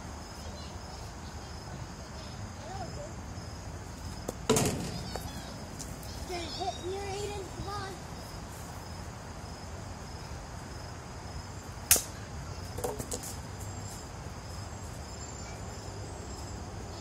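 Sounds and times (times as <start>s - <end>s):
plastic bat striking ball: 4.4s - 5.3s.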